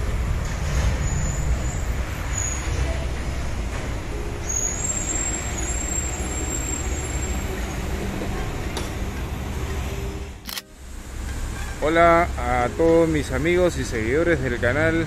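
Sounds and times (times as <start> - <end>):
diesel generator engine rumbling: 0.0 - 15.0.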